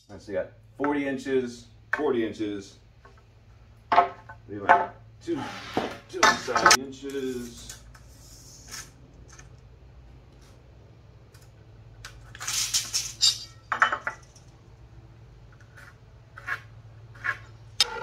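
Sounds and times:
metal tape measure clinking: 12.3 - 13.9.

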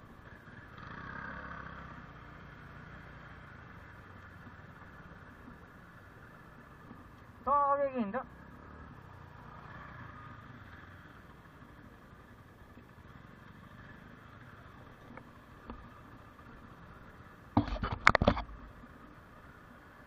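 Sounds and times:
motorcycle running at low speed: 0.0 - 20.0
knocks and rattles over stones: 17.6 - 18.7.

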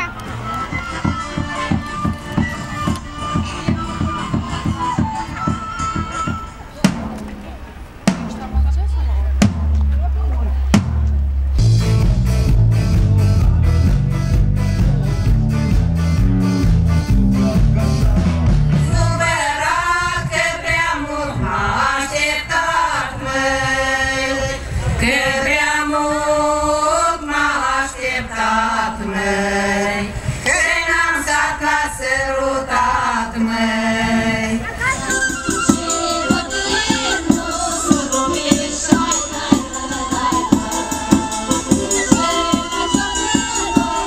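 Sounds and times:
heavy bass: 0.0 - 19.3
steady drum beat: 0.6 - 19.2, 35.0 - 44.0
person singing: 33.5 - 44.0.

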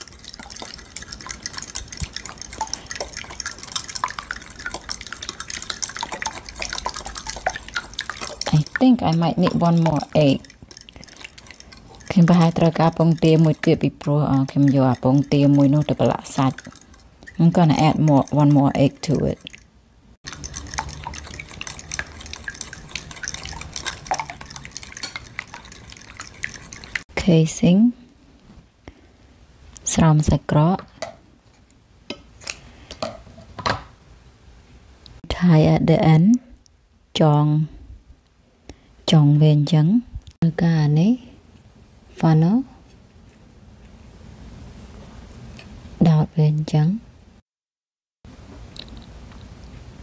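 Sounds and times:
fork clicking against bowl: 0.0 - 19.7, 20.3 - 27.0.

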